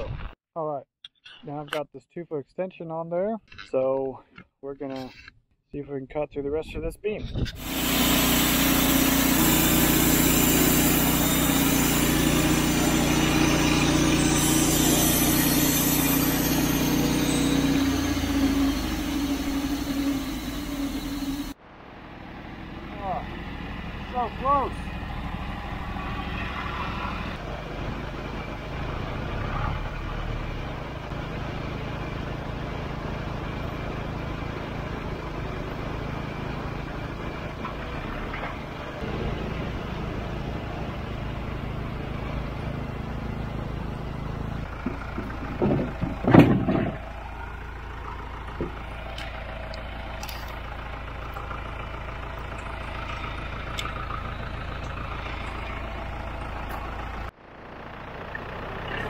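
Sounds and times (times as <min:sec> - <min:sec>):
engine running steadily: 0:07.4 - 0:59.0
loud knocking clatter: 0:44.8 - 0:47.1.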